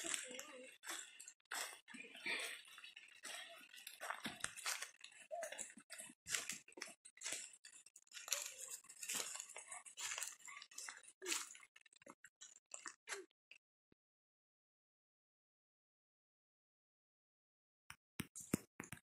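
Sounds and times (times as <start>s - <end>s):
footsteps crunching through wet leaves: 0.0s - 11.6s.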